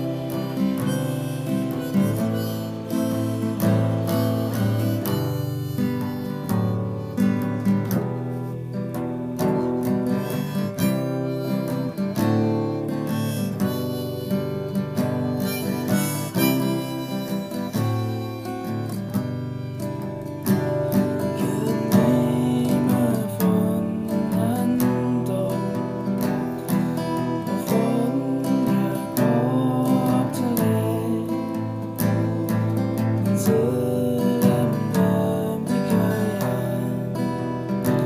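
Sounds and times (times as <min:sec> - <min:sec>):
acoustic guitar picked and strummed: 0:00.0 - 0:38.0
harmonica melody: 0:00.0 - 0:38.0.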